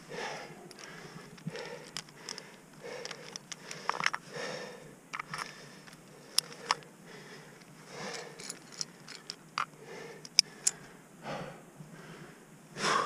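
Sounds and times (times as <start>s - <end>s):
person breathing hard: 0.0s - 8.6s, 9.7s - 13.0s
rope and gear clicking and scraping: 0.6s - 4.3s, 5.1s - 6.9s, 7.5s - 10.8s.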